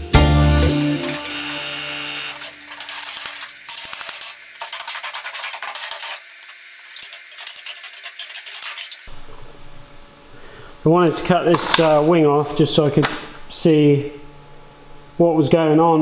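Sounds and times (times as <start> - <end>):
plasma cutter cutting steel: 1.0 - 9.1.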